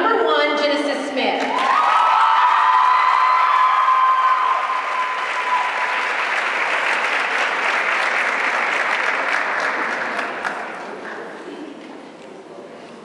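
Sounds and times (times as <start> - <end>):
audience applauding: 1.4 - 11.4.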